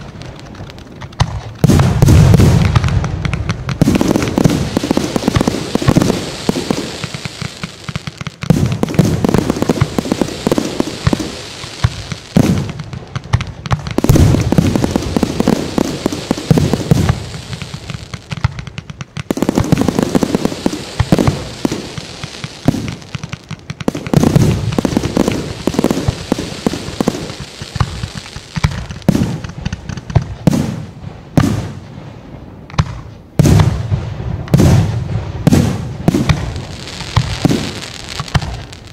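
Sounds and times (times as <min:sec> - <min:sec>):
firework shells bursting: 0:00.0 - 0:30.8.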